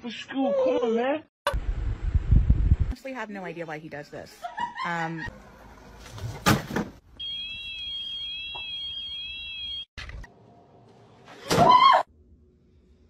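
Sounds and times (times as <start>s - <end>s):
electronic alarm warbling: 7.2s - 9.9s.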